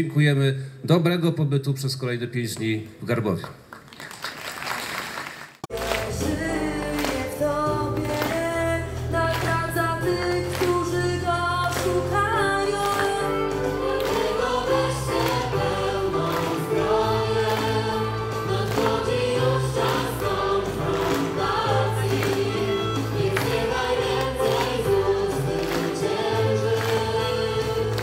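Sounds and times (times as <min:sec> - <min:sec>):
choir singing worship song: 0:05.7 - 0:28.0.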